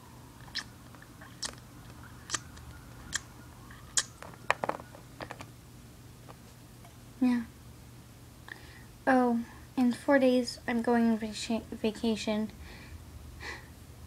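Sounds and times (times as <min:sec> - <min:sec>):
faint steady hum: 0:00.0 - 0:14.0
plastic toys clicking and tapping: 0:04.2 - 0:05.5.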